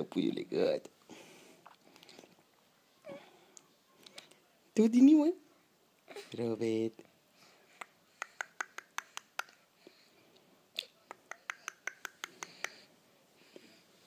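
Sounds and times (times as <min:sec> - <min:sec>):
faint breathing: 0:01.0 - 0:02.4, 0:09.6 - 0:10.6, 0:12.2 - 0:14.0
wet mouth clicks: 0:07.8 - 0:09.6, 0:10.8 - 0:12.8.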